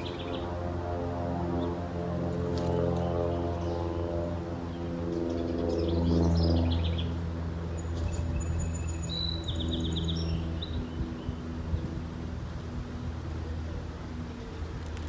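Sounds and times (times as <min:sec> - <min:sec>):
low engine hum: 0:00.0 - 0:15.0
songbirds chirping and trilling: 0:00.0 - 0:15.0.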